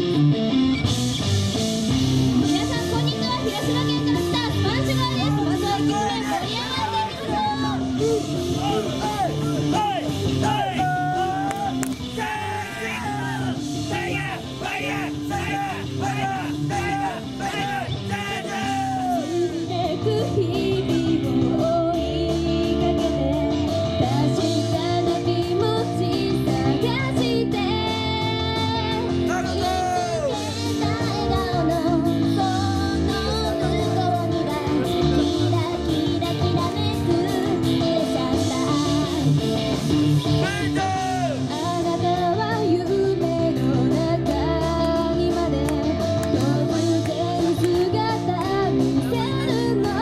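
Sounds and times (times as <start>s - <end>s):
amplified band music: 0.0s - 32.6s, 33.4s - 42.3s
women singing pop song: 18.5s - 50.0s.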